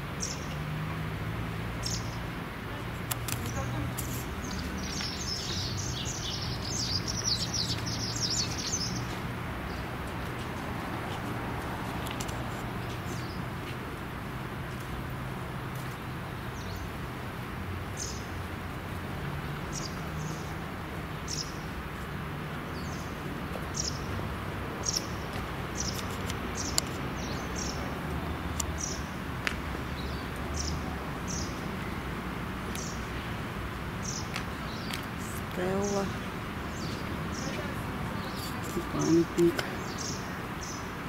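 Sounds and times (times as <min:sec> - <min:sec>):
distant traffic hum: 0:00.0 - 0:41.0
small bird chirping: 0:03.0 - 0:09.8.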